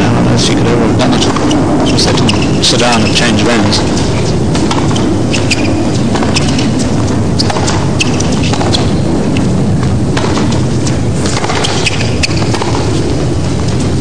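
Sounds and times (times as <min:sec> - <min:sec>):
low court ambience rumble: 0:00.0 - 0:14.0
ball bouncing on court: 0:01.2 - 0:02.6, 0:03.8 - 0:13.2
racket striking ball: 0:01.2 - 0:02.6, 0:03.8 - 0:13.8.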